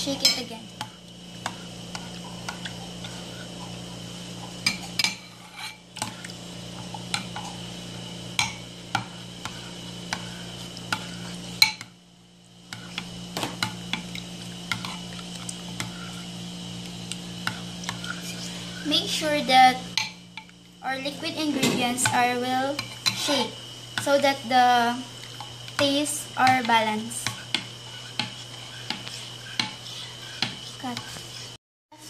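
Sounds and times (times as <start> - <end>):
metal spoon stirring in ceramic dish: 4.6 - 7.6, 27.2 - 31.6.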